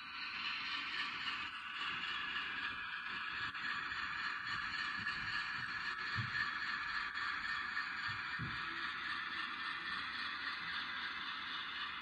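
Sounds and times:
model locomotive diesel engine sound: 0:00.0 - 0:12.0.

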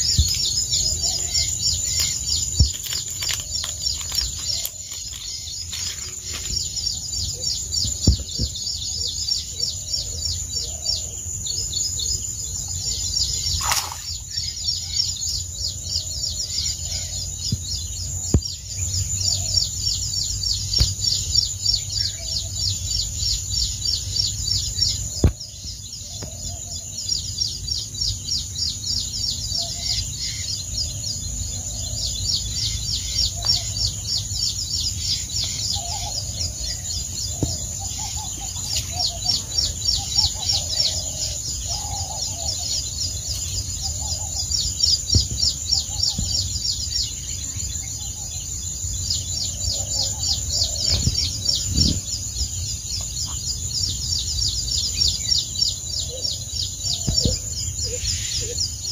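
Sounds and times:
small birds chirping: 0:00.0 - 0:58.9
wind rumble on microphone: 0:43.9 - 0:54.8.

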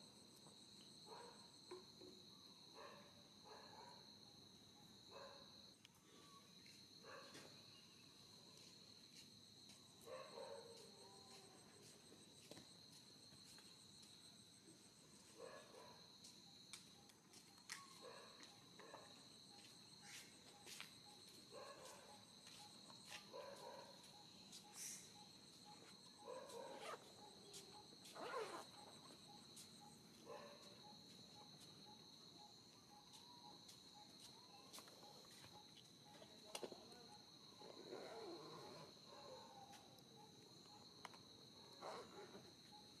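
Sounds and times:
insects droning: 0:00.0 - 0:43.0
pulsing high insect tone: 0:24.0 - 0:26.2.

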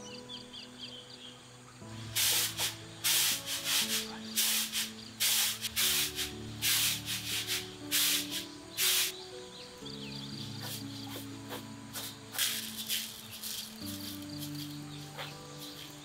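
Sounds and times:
rice swishing in woven tray: 0:02.1 - 0:09.2, 0:10.7 - 0:16.0.

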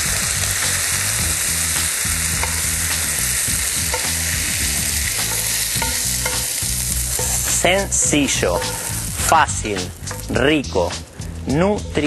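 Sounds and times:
oil sizzling in frying pan: 0:00.0 - 0:11.5
spoon clicking on pan: 0:02.3 - 0:03.0, 0:03.7 - 0:04.4, 0:05.2 - 0:07.5, 0:08.4 - 0:09.0.

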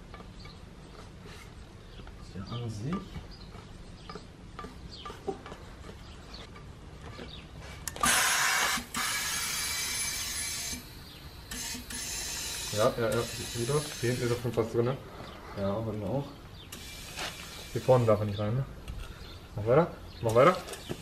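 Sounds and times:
compressed air hissing: 0:07.9 - 0:14.6, 0:16.7 - 0:18.3.

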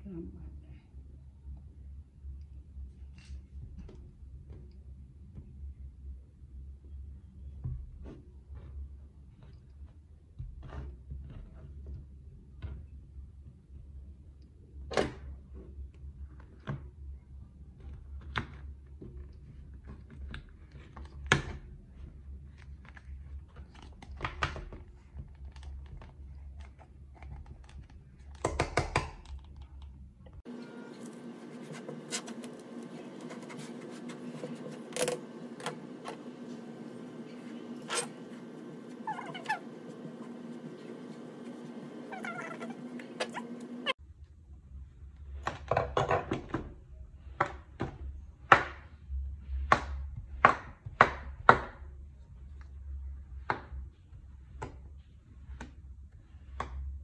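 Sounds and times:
steady low hum: 0:29.7 - 0:45.3.

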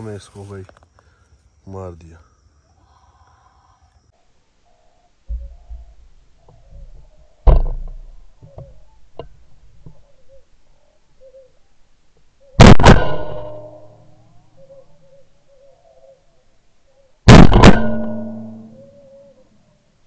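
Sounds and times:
heavy thump: 0:05.3 - 0:08.1
loud shotgun shot: 0:12.6 - 0:14.0, 0:17.3 - 0:18.6.

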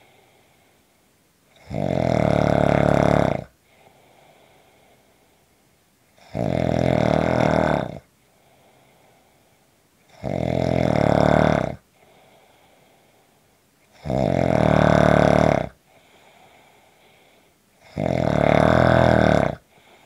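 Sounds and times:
faint breathing: 0:00.0 - 0:01.0, 0:03.6 - 0:05.7, 0:08.1 - 0:09.8, 0:11.8 - 0:13.7, 0:15.8 - 0:17.9, 0:19.6 - 0:20.0
person snoring: 0:01.5 - 0:03.6, 0:06.2 - 0:08.1, 0:10.1 - 0:12.2, 0:13.9 - 0:15.8, 0:17.8 - 0:20.0.

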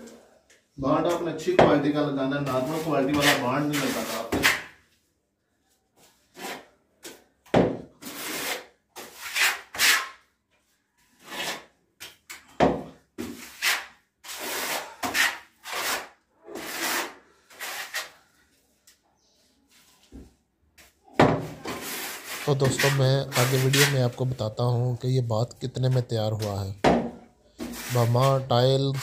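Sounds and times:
trowel scraping adhesive: 0:02.4 - 0:04.7, 0:06.3 - 0:06.7, 0:08.0 - 0:10.3, 0:11.2 - 0:11.7, 0:13.2 - 0:18.2, 0:21.6 - 0:24.2, 0:27.6 - 0:29.0.

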